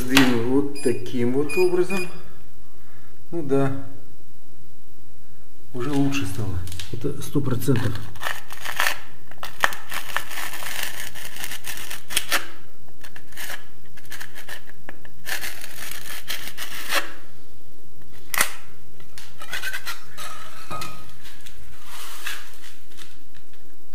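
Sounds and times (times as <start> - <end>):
blade scraping plaster: 13.0 - 17.2.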